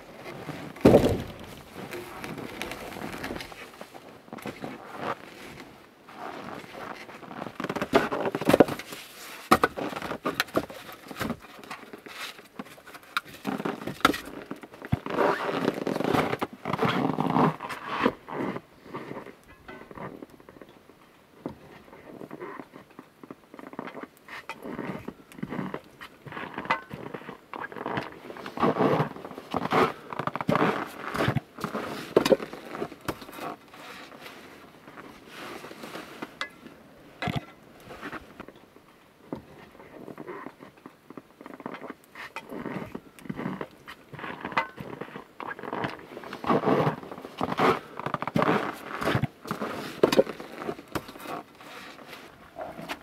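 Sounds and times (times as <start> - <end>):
wood fire crackling and popping: 0.1 - 4.7, 23.0 - 53.0.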